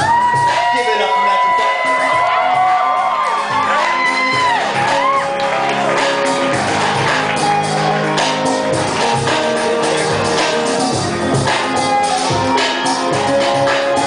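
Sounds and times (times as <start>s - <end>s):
audience whooping and shouting: 0.0s - 9.2s
electronic beat: 0.0s - 14.0s
keyboard chords: 1.9s - 14.0s.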